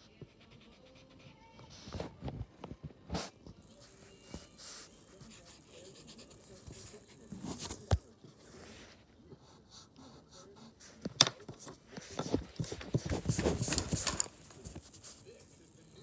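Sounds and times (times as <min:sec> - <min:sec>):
eraser rubbing on paper: 0:03.2 - 0:11.1, 0:11.7 - 0:15.7.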